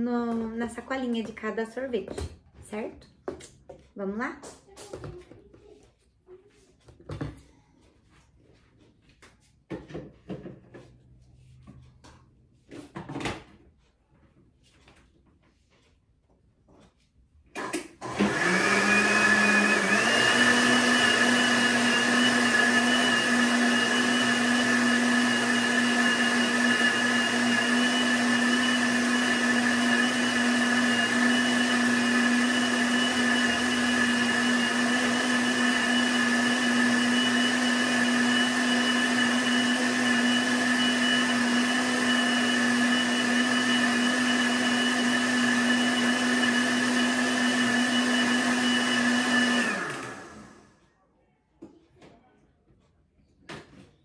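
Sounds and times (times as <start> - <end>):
blender motor running: 17.6 - 50.7.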